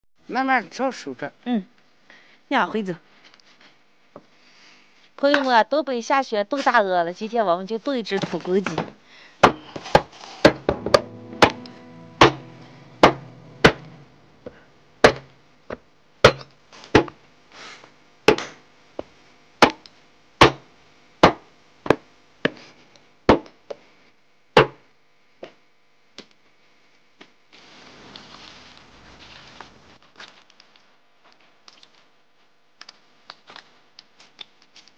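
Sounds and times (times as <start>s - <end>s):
cleaver chopping on wooden board: 8.7s - 10.7s, 15.0s - 15.3s, 16.2s - 17.2s, 18.3s - 18.6s, 19.6s - 20.6s, 21.2s - 22.6s, 23.3s - 23.6s, 24.6s - 24.8s.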